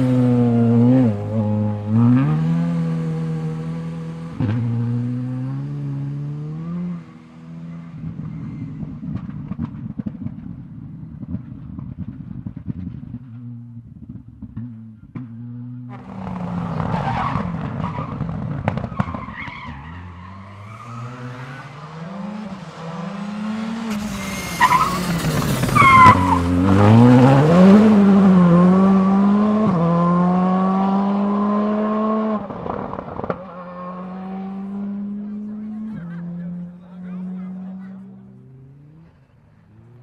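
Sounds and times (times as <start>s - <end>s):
rally car engine revving: 0.0s - 40.0s
tyre squeal: 23.8s - 26.7s.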